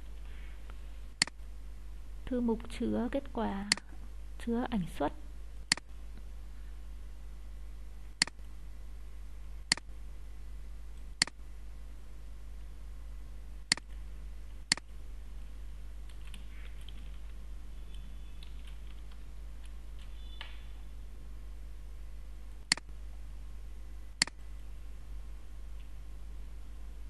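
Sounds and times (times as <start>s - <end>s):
computer mouse clicks: 13.7s - 14.0s, 16.0s - 20.6s, 22.7s - 22.9s
soft keyboard typing: 16.0s - 20.6s.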